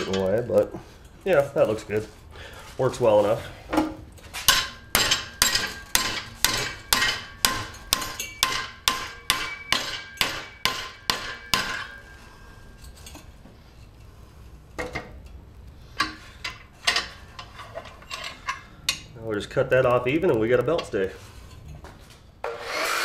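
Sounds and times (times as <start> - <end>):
hammer striking metal rod: 4.5 - 12.2
light metal clinks: 7.7 - 8.6.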